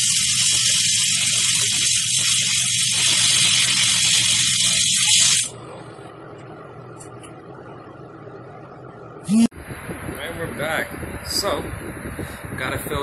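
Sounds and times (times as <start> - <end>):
welding arc hissing and crackling: 0.0 - 5.6
low hum: 5.5 - 12.6.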